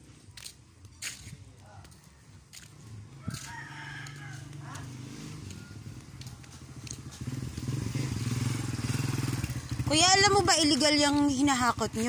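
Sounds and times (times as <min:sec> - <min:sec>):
rooster crowing: 0:03.1 - 0:06.0
engine droning: 0:04.0 - 0:12.0.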